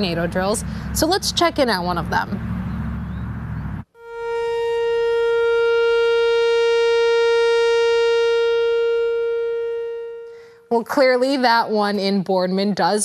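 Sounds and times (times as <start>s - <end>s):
warning siren steady tone: 2.9s - 11.0s.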